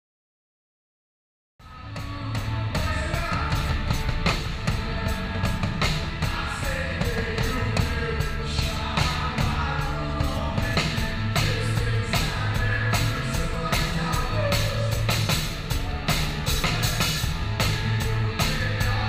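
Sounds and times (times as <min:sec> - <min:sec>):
live rock band playing: 0:01.6 - 0:19.0
person singing: 0:01.6 - 0:19.0
drum and cymbal hits: 0:01.7 - 0:19.0.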